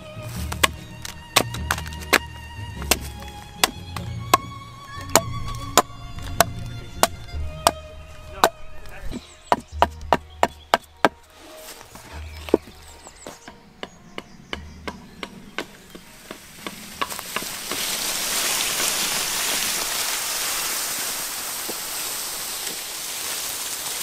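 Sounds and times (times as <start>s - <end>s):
light chopping knocks: 0.4s - 11.2s
branches dragged over leaf litter: 11.2s - 13.1s, 16.0s - 24.0s.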